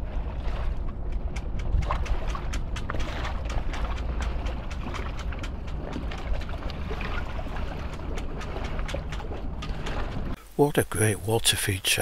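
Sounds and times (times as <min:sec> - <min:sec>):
waves lapping on stony shore: 0:00.0 - 0:10.4
wind buffeting microphone: 0:00.0 - 0:10.4.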